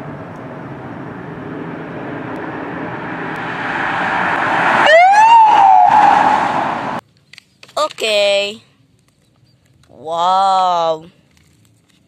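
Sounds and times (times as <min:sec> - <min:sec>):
car engine and road noise: 0:00.0 - 0:10.2
police siren wailing: 0:01.8 - 0:07.0.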